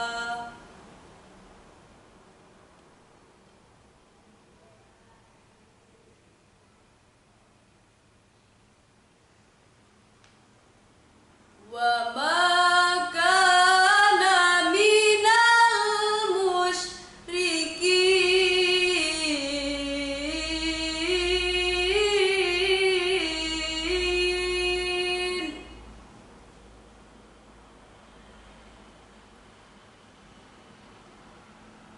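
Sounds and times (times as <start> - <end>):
woman reciting melodically: 0.0 - 0.7, 11.6 - 25.8.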